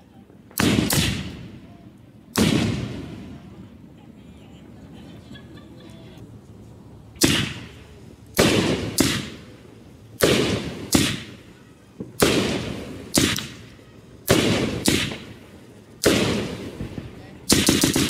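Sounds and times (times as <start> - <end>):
firework cake bangs: 0.5 - 1.6, 2.3 - 3.4, 7.2 - 9.5, 10.2 - 11.4, 12.0 - 15.4, 16.0 - 18.0.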